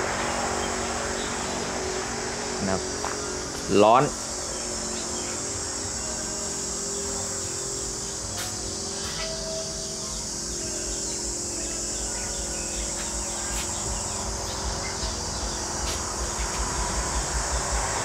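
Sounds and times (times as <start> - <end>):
insects chirring: 0.0 - 18.0
low thumps: 13.6 - 18.0.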